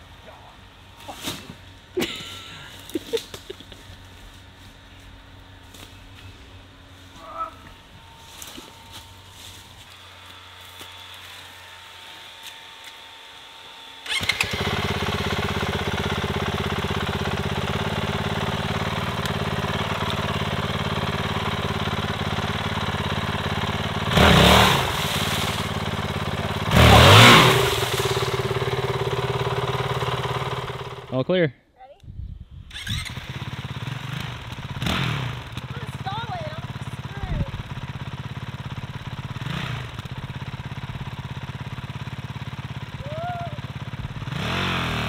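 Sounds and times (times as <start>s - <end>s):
motorcycle engine starting and idling: 14.0s - 31.2s, 32.6s - 45.0s
engine revving blips: 23.9s - 31.1s, 32.7s - 35.7s.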